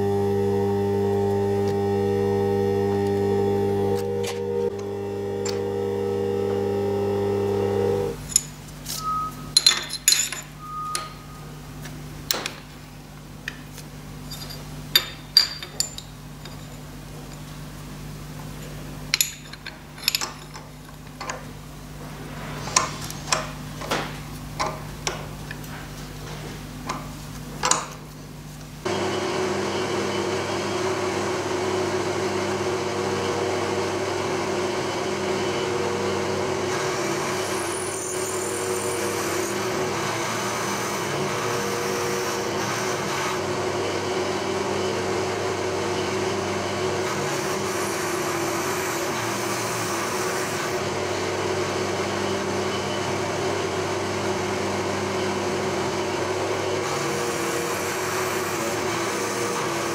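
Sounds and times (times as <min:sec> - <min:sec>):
milling machine cutting metal: 0:00.0 - 0:08.2, 0:28.9 - 0:59.9
metallic knocks and clinks: 0:09.5 - 0:11.2, 0:14.2 - 0:17.5, 0:19.1 - 0:21.0.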